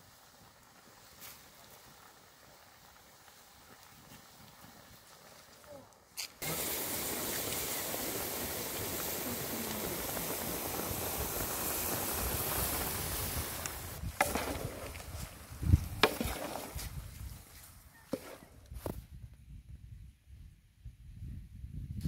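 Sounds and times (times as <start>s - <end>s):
steady rushing hiss: 0.0s - 17.7s
wooden paddle stirring in metal pan: 16.0s - 16.8s.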